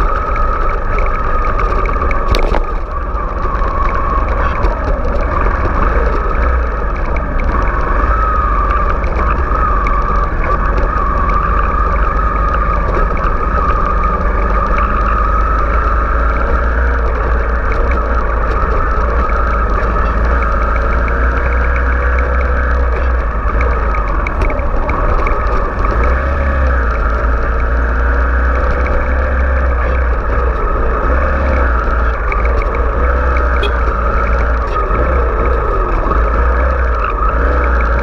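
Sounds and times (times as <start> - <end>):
motorcycle engine running: 0.0 - 38.0.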